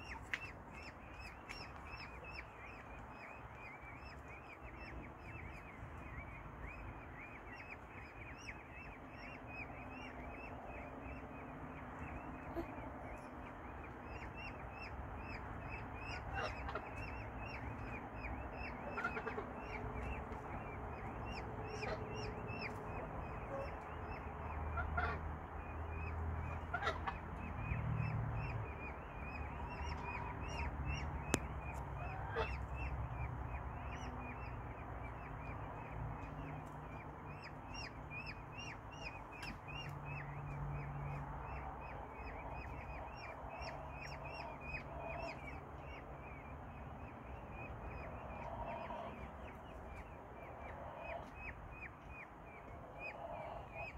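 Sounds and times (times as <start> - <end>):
peachicks peeping: 0.0 - 53.9.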